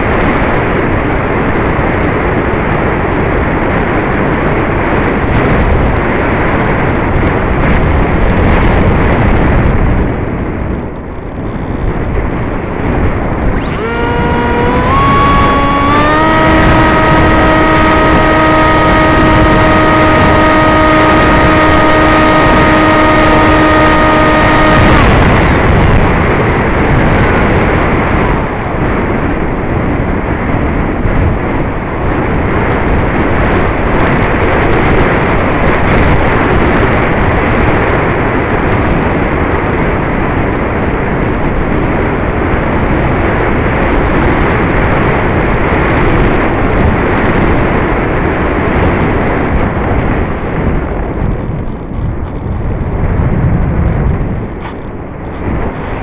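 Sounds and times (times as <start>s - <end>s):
electric motor and propeller whining: 0.0s - 39.4s
rushing wind: 0.0s - 56.0s.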